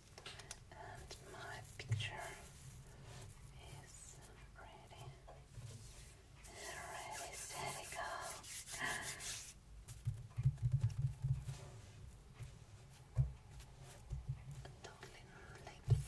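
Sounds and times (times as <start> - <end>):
hands rubbing: 5.8 - 10.1
palms thudding on paper: 9.9 - 11.6, 15.8 - 16.0.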